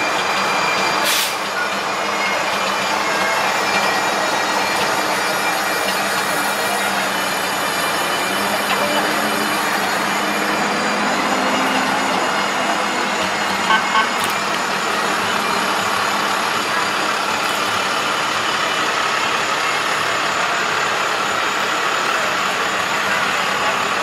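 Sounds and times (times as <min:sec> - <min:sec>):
diesel truck driving past: 0:00.0 - 0:24.0
traffic noise: 0:00.0 - 0:24.0
horn toots: 0:13.5 - 0:14.4.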